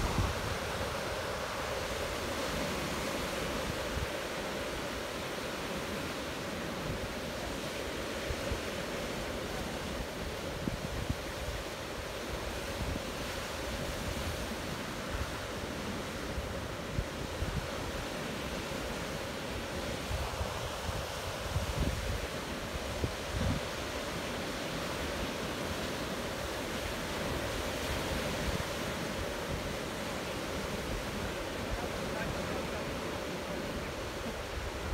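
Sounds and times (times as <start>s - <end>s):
wind gusting on microphone: 0.0s - 5.1s, 6.6s - 15.5s, 16.1s - 25.0s
sea surf washing: 0.0s - 34.9s.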